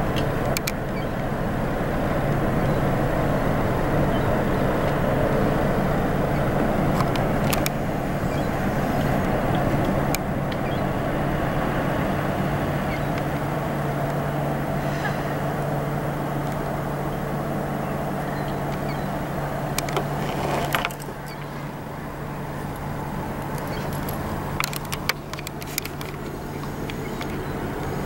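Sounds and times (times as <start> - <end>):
constant rushing noise: 0.0 - 28.0
ship engines humming: 0.0 - 28.0
sharp clicks: 23.4 - 27.9.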